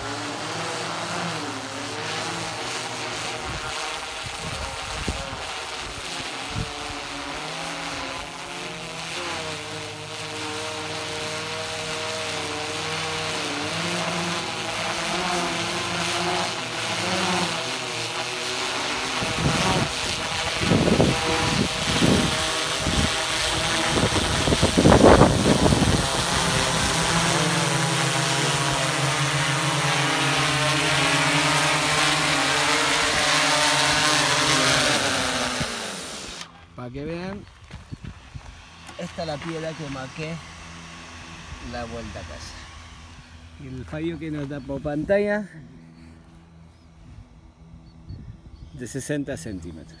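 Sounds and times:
drone motors spinning down: 0.0 - 48.5
drone propellers humming: 0.0 - 50.0
wind noise: 3.4 - 7.1, 19.1 - 27.4, 37.4 - 38.7, 47.0 - 48.8.

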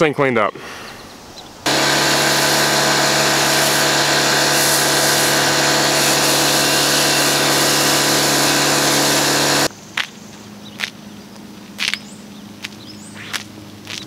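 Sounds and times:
pressure washer motor drone: 1.7 - 9.7
spray hiss: 1.7 - 9.7.

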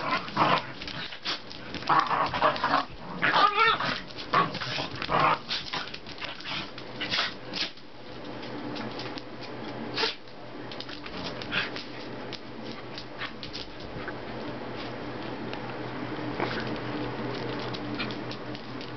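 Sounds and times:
dog growling: 0.0 - 5.9, 16.3 - 16.9
dogs scuffling: 0.0 - 18.9.

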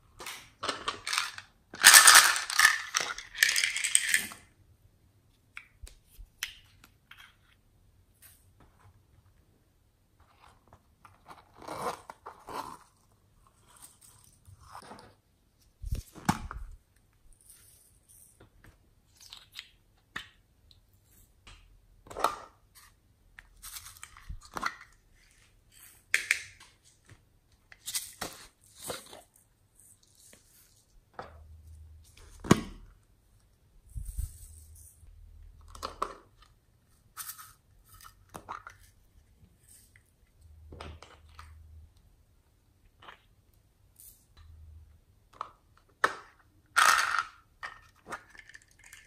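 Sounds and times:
plastic rustles and clicks: 46.8 - 49.0.

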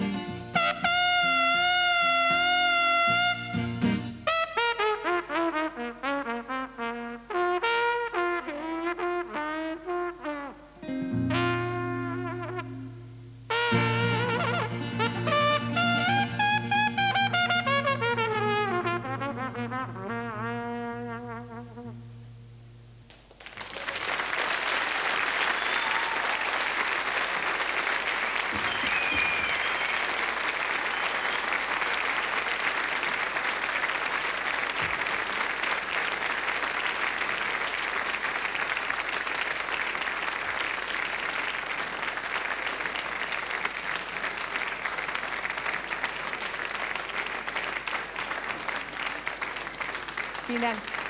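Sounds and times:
jazz trumpet note: 0.5 - 23.0
audience applause: 23.1 - 51.0.

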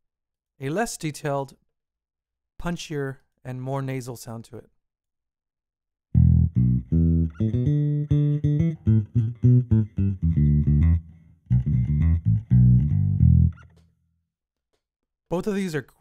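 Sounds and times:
plucked bass line: 6.2 - 13.8.

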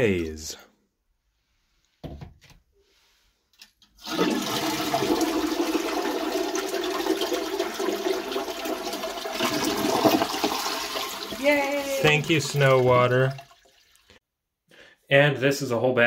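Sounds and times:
toilet water rushing: 4.0 - 14.2.

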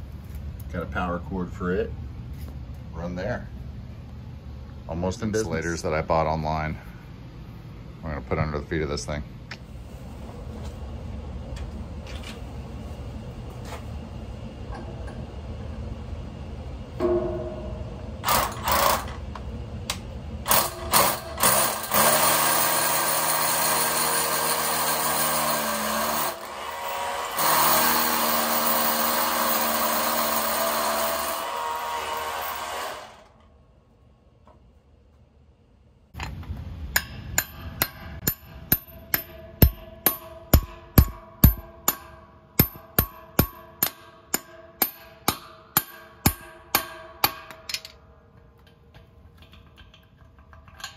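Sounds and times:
hammer striking steel anchor: 17.0 - 18.4, 36.9 - 48.0
drill boring into concrete: 20.5 - 33.3.

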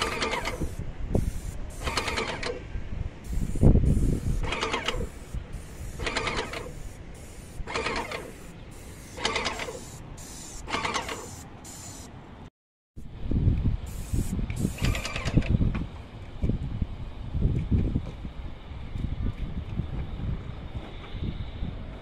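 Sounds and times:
paint sprayer clattering: 0.0 - 2.6, 3.4 - 12.0, 14.6 - 15.4.

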